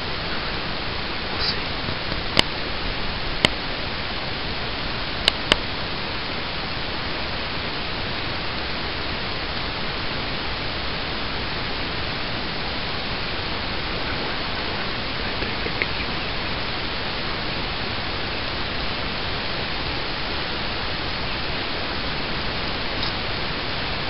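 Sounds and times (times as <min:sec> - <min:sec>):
steady hiss: 0:00.0 - 0:24.0
sharp clicks: 0:05.3 - 0:05.6, 0:23.0 - 0:23.2.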